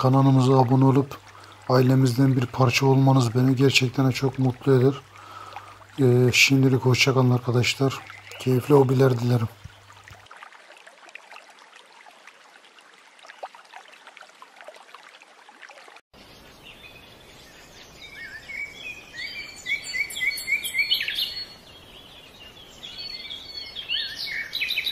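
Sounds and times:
birds chirping: 0.0 - 10.2, 16.2 - 24.9
aquarium water bubbling: 0.0 - 16.0.

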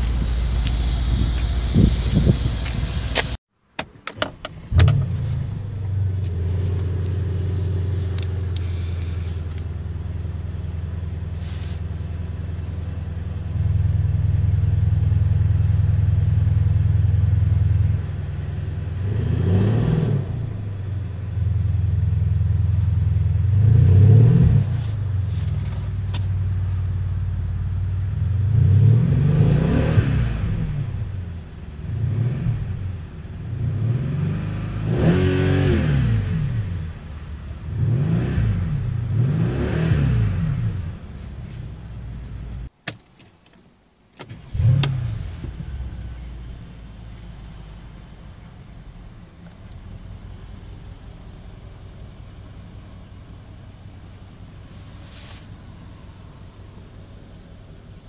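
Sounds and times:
car engine idling: 0.0 - 19.4, 20.2 - 28.9, 30.4 - 33.7, 43.6 - 58.0
car engine starting: 0.0 - 58.0
car engine revving: 4.6 - 26.8, 27.8 - 41.3, 44.4 - 58.0.

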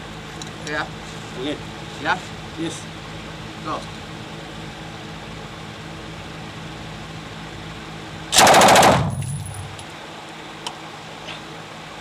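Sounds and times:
machine gun burst: 8.4 - 9.8.

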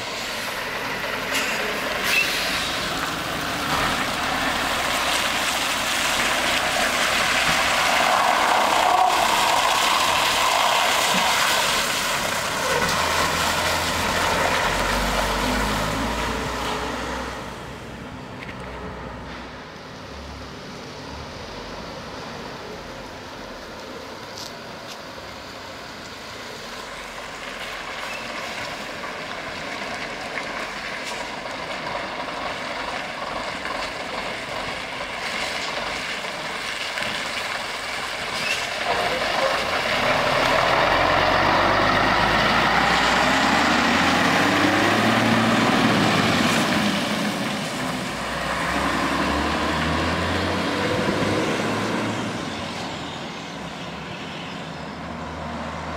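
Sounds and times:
diesel truck engine running: 29.0 - 54.0.

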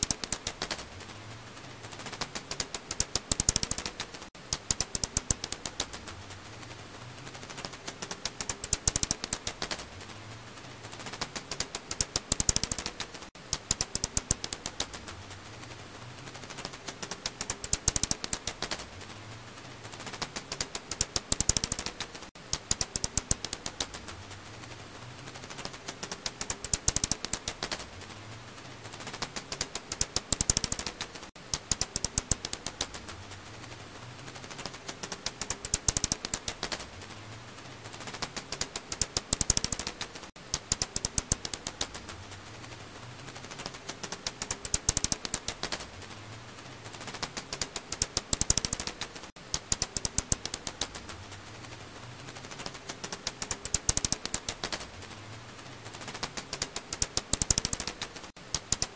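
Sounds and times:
bat calls as dry clicks: 29.1 - 33.0, 47.1 - 50.9, 56.1 - 58.9.

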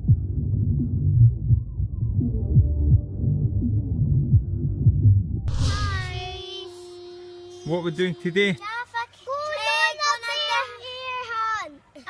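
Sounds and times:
low throb: 0.0 - 8.6
deep synth bass notes sliding down: 1.4 - 6.5.

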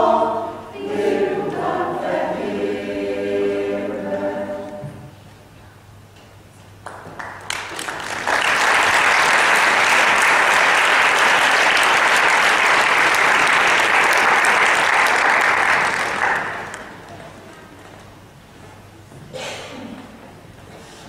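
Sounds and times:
audience applauding: 6.8 - 17.1.

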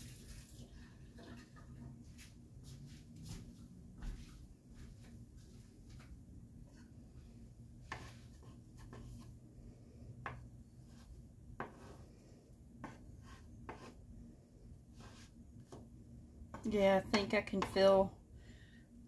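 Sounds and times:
faint low hum: 0.1 - 19.0.

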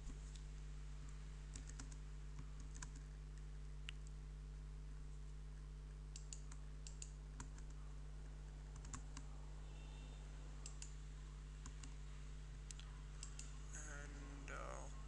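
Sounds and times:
low electrical hum: 0.0 - 15.0
keyboard clicking: 1.5 - 2.0, 12.7 - 13.5.

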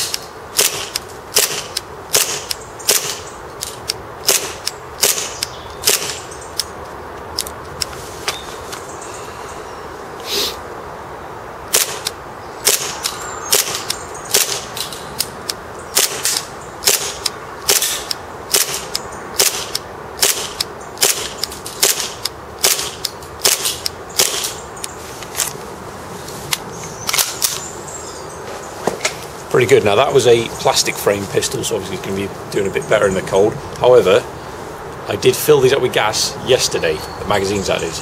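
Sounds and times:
airsoft pistol shots: 0.6 - 3.3, 4.2 - 6.2, 11.7 - 14.7, 16.0 - 24.6.

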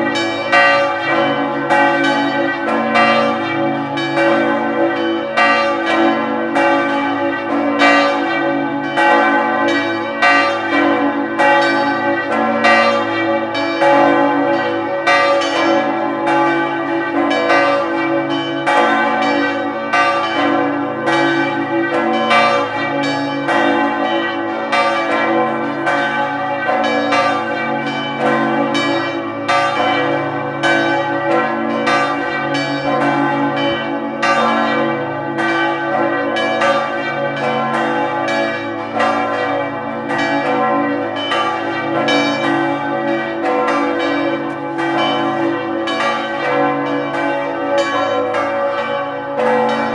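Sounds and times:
church bells pealing: 0.0 - 49.9.

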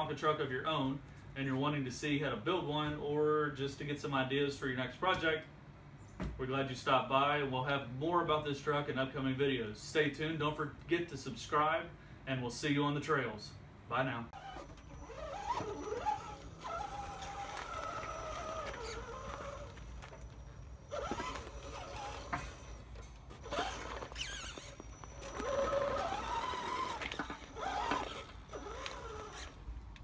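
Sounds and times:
toy truck motor and gears whining: 14.4 - 29.7.

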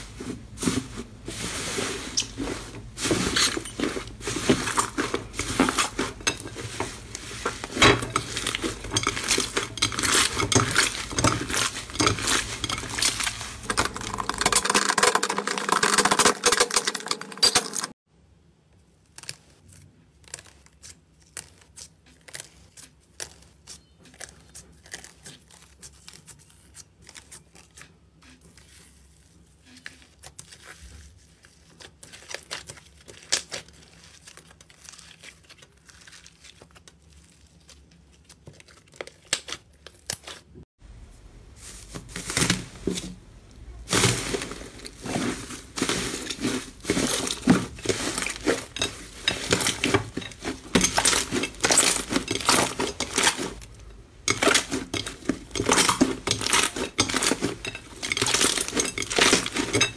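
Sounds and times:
foil crinkling: 0.0 - 18.0, 19.0 - 40.6, 41.6 - 59.9
slime tearing with a crackle: 19.0 - 27.8, 28.6 - 40.5.

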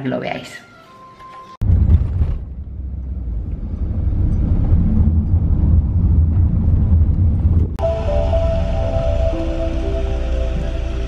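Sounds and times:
car engine and road noise: 1.6 - 11.0
music with sustained notes: 7.8 - 11.0.

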